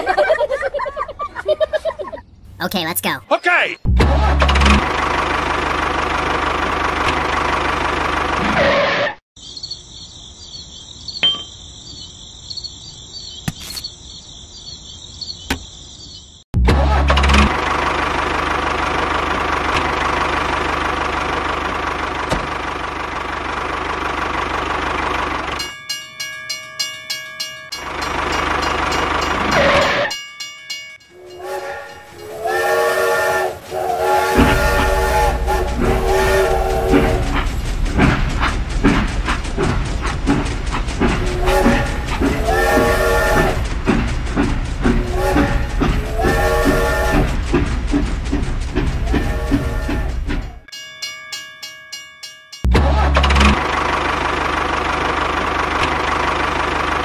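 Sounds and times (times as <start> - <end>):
train whistle: 31.2 - 37.5, 41.2 - 43.6, 45.0 - 47.4, 49.0 - 50.4
rhythmic clatter: 36.8 - 46.4.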